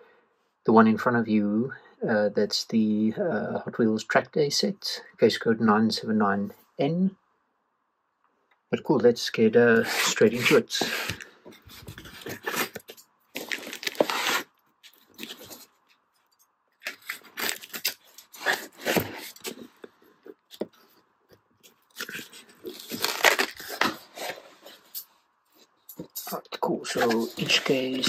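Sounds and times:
cardboard scraping and crunching: 9.8 - 15.7, 16.8 - 19.8, 22.0 - 24.6, 26.8 - 28.0
scissors cutting packing tape: 12.4 - 14.5, 16.8 - 19.6, 21.9 - 24.2.

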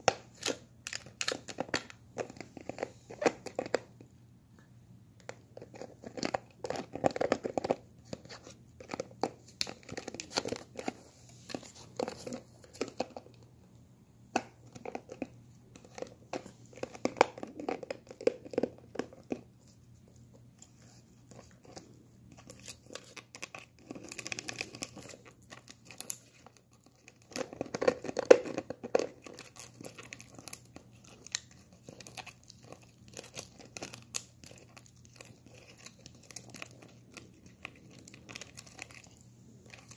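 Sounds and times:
dog chewing plastic bottle: 5.2 - 13.2, 14.6 - 19.5, 21.3 - 39.9.

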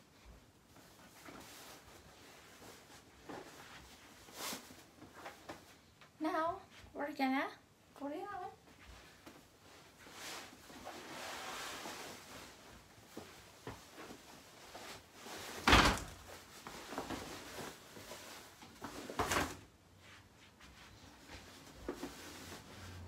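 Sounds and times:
mattress rustling and handling: 0.0 - 6.9, 8.6 - 23.0
mattress thumping into crib: 15.5 - 16.3.

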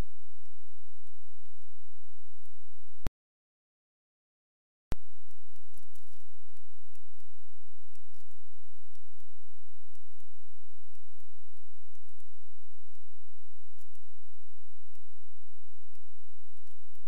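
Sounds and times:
steady low hum: 0.0 - 3.1, 4.9 - 17.0
computer mouse clicking: 10.9 - 12.3, 13.8 - 14.1.

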